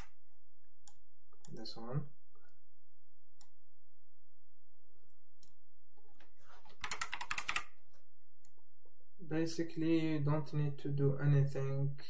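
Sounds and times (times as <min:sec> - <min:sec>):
keyboard keystrokes: 0:06.8 - 0:07.7.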